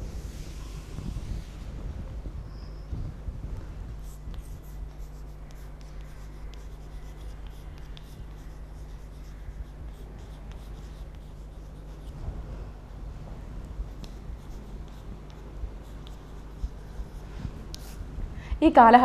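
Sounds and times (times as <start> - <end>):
steady low hum: 0.0 - 19.0
chalk scratching on blackboard: 4.0 - 12.3, 13.8 - 18.1.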